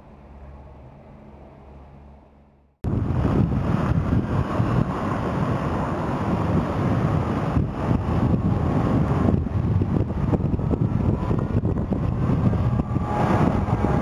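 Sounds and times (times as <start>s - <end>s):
tram running on rails: 0.0s - 14.0s
wind buffeting microphone: 2.8s - 14.0s.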